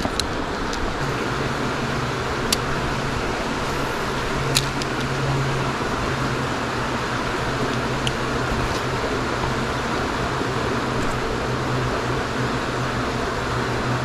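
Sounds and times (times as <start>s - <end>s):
low even hum: 0.0s - 14.0s
sharp clicks: 4.5s - 5.2s.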